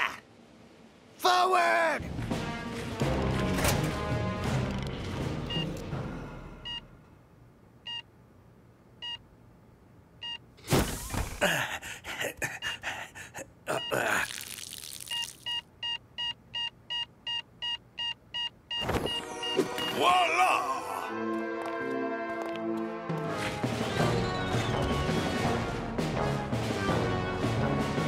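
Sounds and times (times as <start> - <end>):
heart monitor beeping: 5.5 - 5.7, 6.6 - 6.9, 15.1 - 20.0.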